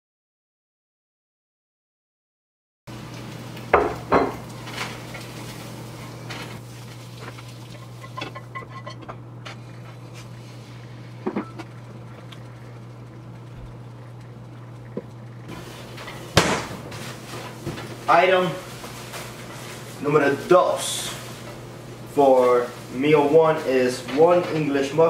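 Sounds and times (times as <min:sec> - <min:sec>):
steady low hum: 0:02.9 - 0:25.0
pans and plates clinking: 0:03.8 - 0:05.4, 0:07.2 - 0:09.6.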